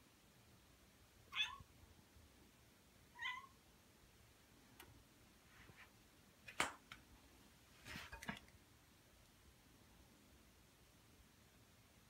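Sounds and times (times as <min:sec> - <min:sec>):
cat meowing: 0:01.3 - 0:01.7, 0:03.1 - 0:03.6.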